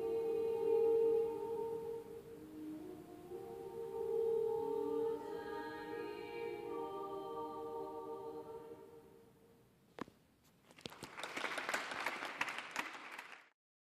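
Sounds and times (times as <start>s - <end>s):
girls singing a cappella: 0.0s - 9.2s
audience applause: 10.8s - 13.5s.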